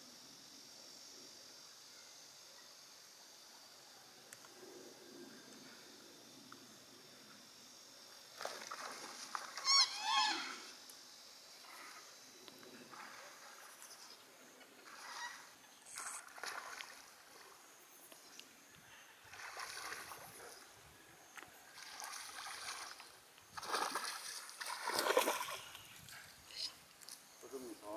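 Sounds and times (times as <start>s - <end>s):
fish splashing at water surface: 19.3s - 20.2s, 21.8s - 25.8s.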